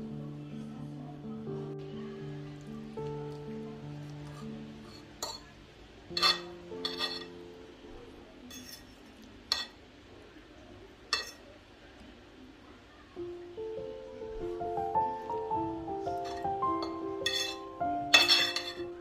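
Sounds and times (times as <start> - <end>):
soft background music: 0.0 - 9.6, 13.1 - 19.0
fork clinking on ceramic plate: 6.1 - 7.4, 11.1 - 11.4, 16.2 - 18.9.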